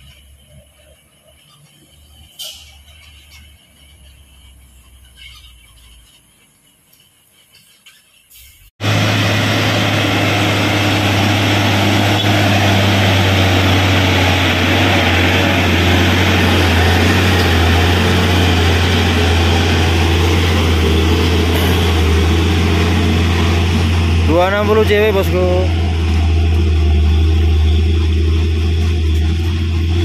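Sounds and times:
truck diesel engine droning: 8.8 - 30.0.

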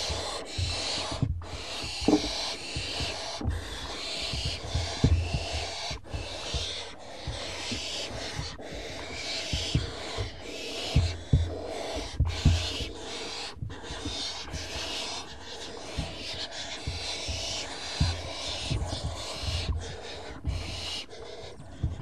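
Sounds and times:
owl nestlings hissing calls: 0.0 - 22.0
soft thumps in nest box: 0.5 - 6.7.

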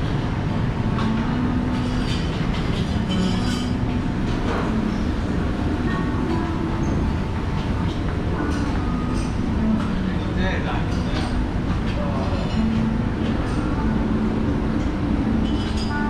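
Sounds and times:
faint murmur of voices: 0.0 - 16.0
low restaurant rumble: 0.0 - 16.0
tableware clinking: 1.0 - 5.0, 7.8 - 9.9, 14.8 - 16.0.

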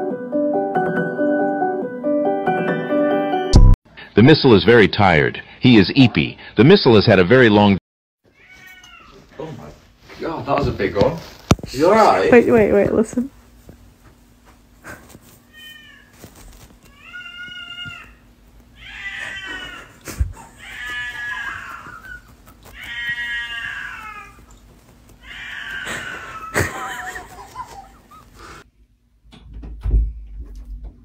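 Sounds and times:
cat meowing: 8.3 - 9.3, 15.4 - 16.2, 16.9 - 18.2, 18.8 - 24.5, 25.2 - 26.6.

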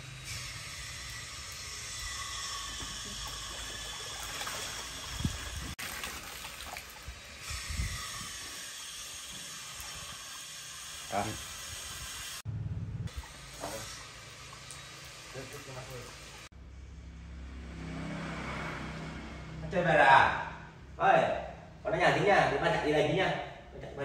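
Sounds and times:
water running: 1.2 - 12.4, 13.1 - 16.5.

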